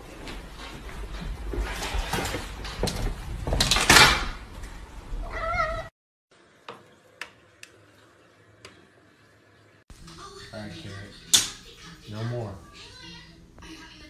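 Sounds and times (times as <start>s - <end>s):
cat meowing: 5.2s - 5.9s.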